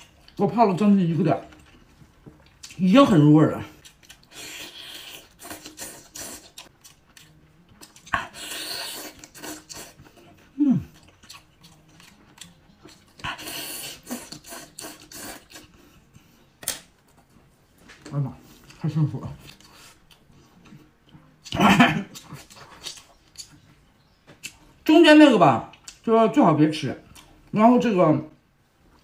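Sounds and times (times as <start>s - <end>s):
chewing: 3.7s - 16.1s, 19.4s - 23.8s
slurping: 4.2s - 6.7s, 7.8s - 11.4s, 13.2s - 15.8s
person humming with pleasure: 10.6s - 10.9s.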